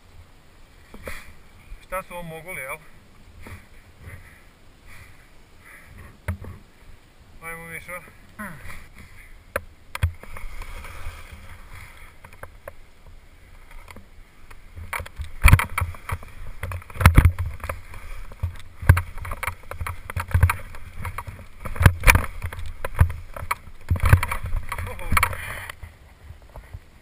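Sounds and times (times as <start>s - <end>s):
sharp knocks and thumps: 8.9s - 11.4s, 14.8s - 25.5s
skis hissing through snow: 10.3s - 12.2s.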